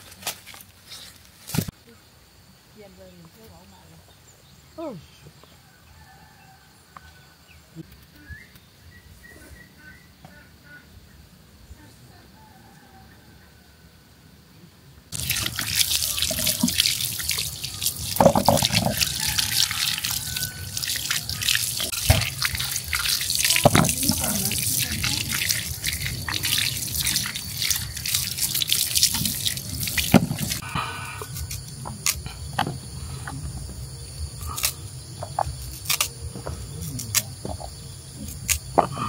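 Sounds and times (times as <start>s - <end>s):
water running in a sink: 15.2s - 30.6s.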